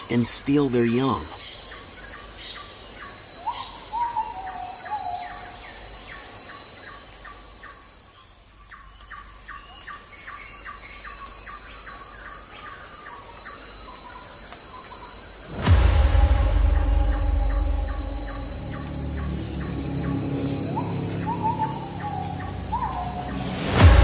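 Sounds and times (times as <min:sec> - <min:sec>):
high insect trill: 0:00.0 - 0:24.0
loud low hum: 0:15.6 - 0:24.0
bird whistled call: 0:17.0 - 0:23.6.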